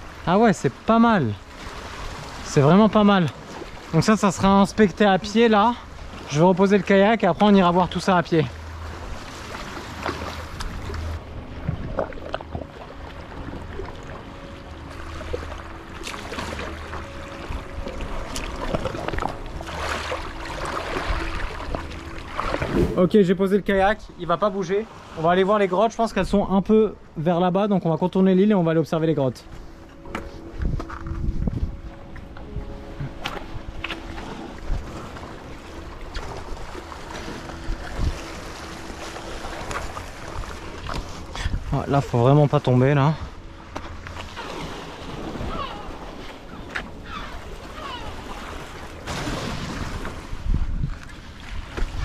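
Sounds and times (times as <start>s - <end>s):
water splashing: 0.0s - 23.9s, 32.6s - 52.0s
soft background music: 0.0s - 52.0s
wind buffeting microphone: 22.5s - 23.8s, 30.4s - 33.8s, 49.4s - 52.0s.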